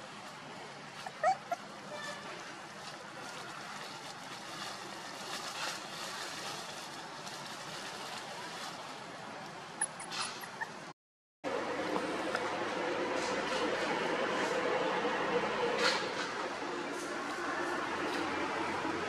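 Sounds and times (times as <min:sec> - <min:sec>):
puppy whimpering: 0:01.0 - 0:01.7, 0:09.8 - 0:10.8.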